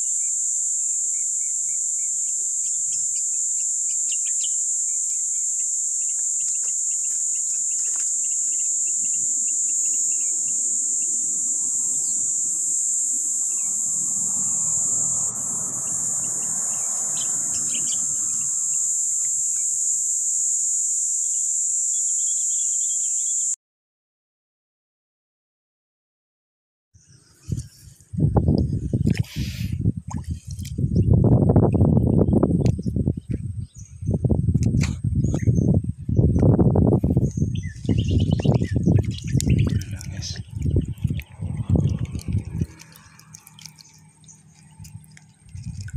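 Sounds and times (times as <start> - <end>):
insects droning: 0.0 - 23.6, 35.2 - 45.9.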